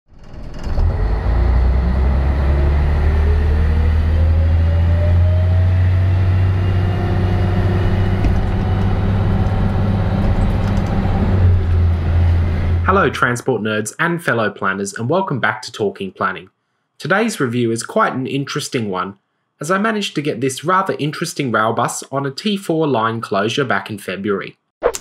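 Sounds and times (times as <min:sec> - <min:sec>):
rising whine: 0:00.5 - 0:13.2
bus diesel engine droning: 0:00.8 - 0:13.2.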